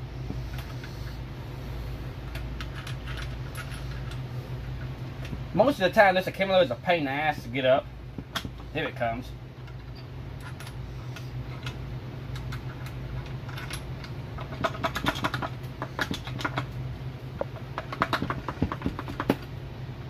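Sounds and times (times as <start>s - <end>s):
steady low hum: 0.0s - 20.0s
metallic clicks of parts handled: 2.2s - 5.4s, 9.6s - 16.8s.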